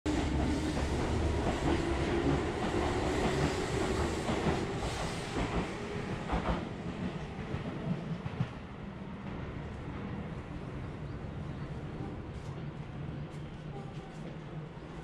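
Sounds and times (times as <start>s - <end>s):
train wheels rumbling on rails: 0.1s - 10.7s.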